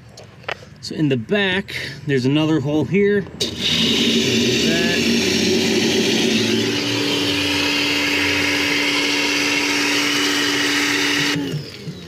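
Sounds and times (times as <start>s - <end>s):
hissing water jet: 3.4s - 11.4s
power washer pump humming: 3.4s - 12.0s.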